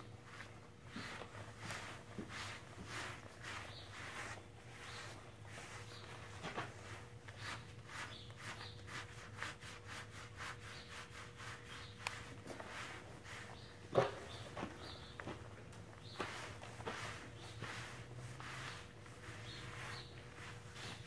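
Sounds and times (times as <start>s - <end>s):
grooming gloves rubbing horse coat: 0.0s - 21.0s.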